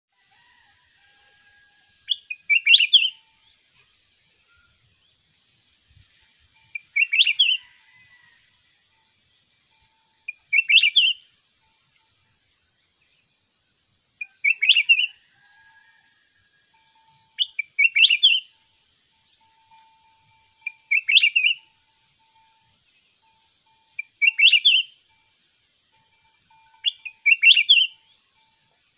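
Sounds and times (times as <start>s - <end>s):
bird singing warbled phrases: 2.1s - 3.5s, 6.6s - 7.6s, 10.2s - 11.3s, 14.2s - 15.2s, 17.4s - 18.6s, 20.6s - 21.7s, 24.0s - 25.0s, 26.8s - 28.0s.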